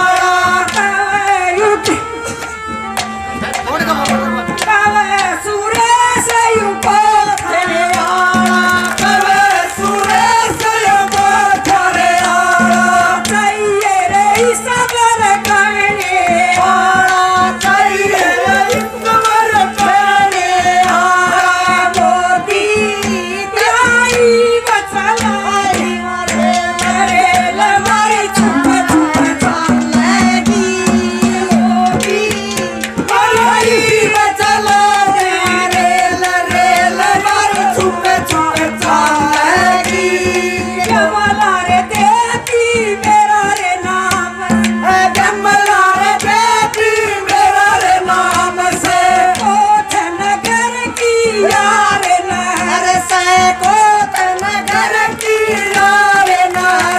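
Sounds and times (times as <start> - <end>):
woman singing into a microphone: 0.0 - 3.4, 4.4 - 56.9
percussion: 0.0 - 56.9
held drone note: 28.3 - 31.6.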